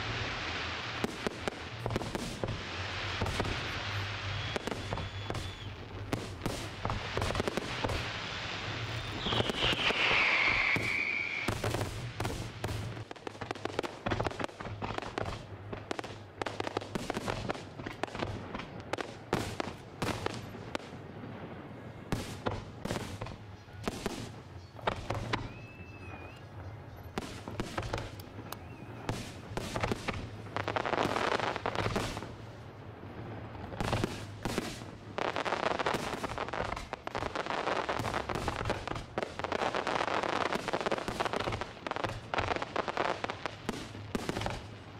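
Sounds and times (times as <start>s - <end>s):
rapid firework crackling: 0.0s - 21.0s, 27.2s - 32.5s, 33.6s - 44.9s
firework bangs: 0.0s - 21.5s, 27.2s - 32.5s, 33.2s - 44.9s
firework whistle: 3.0s - 5.9s, 6.5s - 12.1s, 22.2s - 30.2s.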